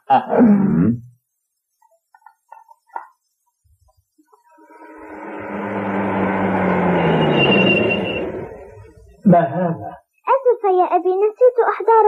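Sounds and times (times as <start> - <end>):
truck engine approaching: 4.6 - 9.0.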